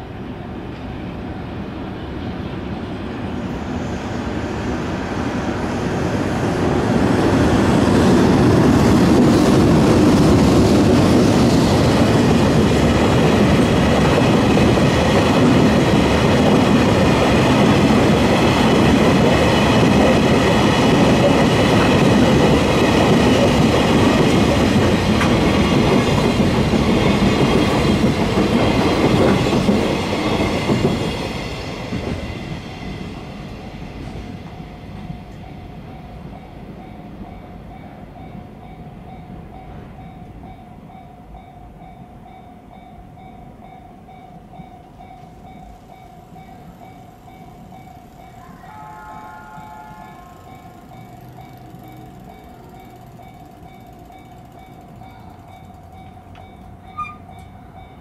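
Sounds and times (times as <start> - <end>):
freight train wheels on rails: 0.0 - 58.0
level crossing bells ringing: 44.7 - 58.0.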